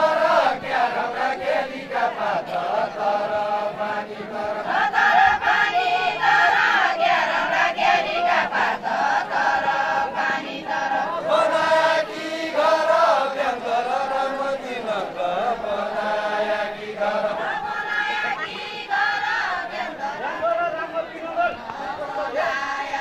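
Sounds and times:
group chanting in unison: 0:00.0 - 0:23.0.

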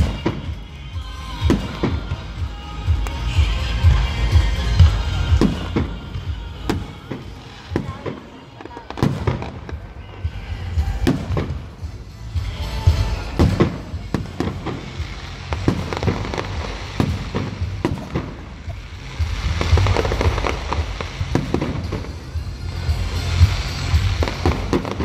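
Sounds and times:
fireworks bursting with bangs: 0:00.0 - 0:25.0
fireworks crackling: 0:00.0 - 0:25.0
music playing: 0:00.0 - 0:25.0.

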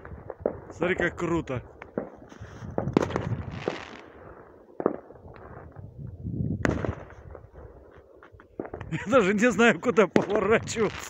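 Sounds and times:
fireworks bangs and crackling: 0:00.0 - 0:11.0.

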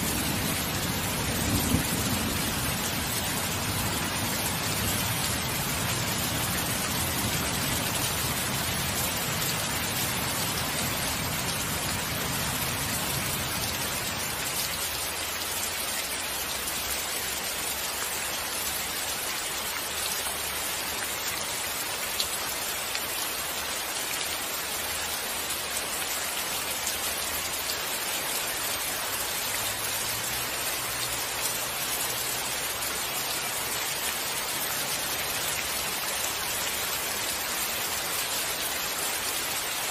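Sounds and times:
distant thunder rumble: 0:00.0 - 0:08.9
steady rain falling: 0:00.0 - 0:39.9.

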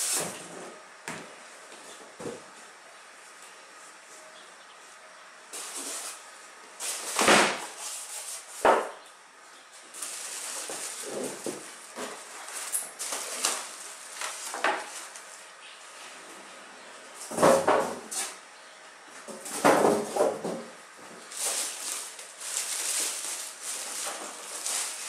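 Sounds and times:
plastic wrap crinkling: 0:09.9 - 0:15.5, 0:21.2 - 0:25.0.

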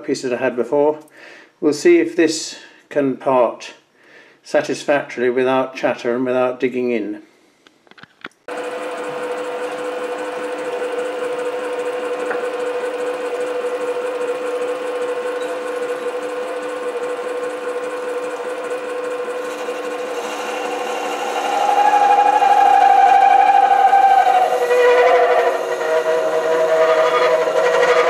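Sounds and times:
high ringing tone of tool cutting steel: 0:08.5 - 0:28.0
lathe motor whine: 0:08.5 - 0:28.0.

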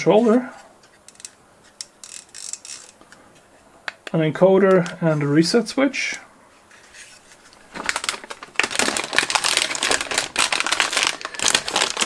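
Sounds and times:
plastic bags crinkling: 0:07.5 - 0:12.0.

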